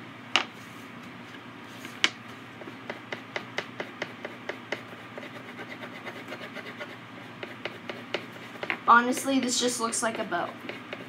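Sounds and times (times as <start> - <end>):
crayon tapping on paper: 2.8 - 5.0, 7.4 - 9.3, 10.0 - 11.0.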